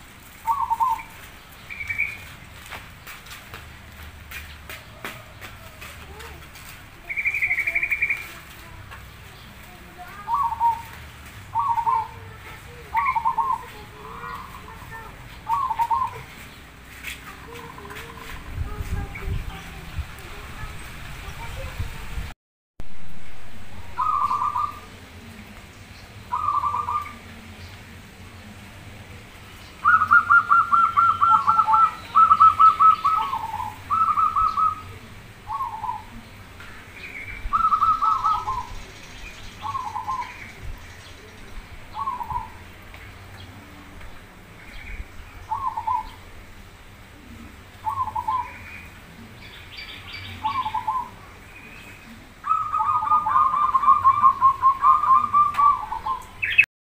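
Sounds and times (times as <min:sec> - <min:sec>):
dove cooing: 0:00.4 - 0:02.2, 0:09.6 - 0:16.4, 0:24.0 - 0:25.6, 0:26.3 - 0:27.6, 0:29.8 - 0:36.3, 0:37.4 - 0:38.8, 0:39.6 - 0:40.4, 0:41.9 - 0:42.6, 0:45.4 - 0:46.3, 0:47.1 - 0:51.4, 0:52.0 - 0:56.6
higher bird chirps: 0:00.4 - 0:02.4, 0:11.5 - 0:12.2, 0:24.0 - 0:24.9, 0:26.0 - 0:27.2, 0:29.6 - 0:34.9, 0:36.9 - 0:42.6, 0:49.5 - 0:56.7.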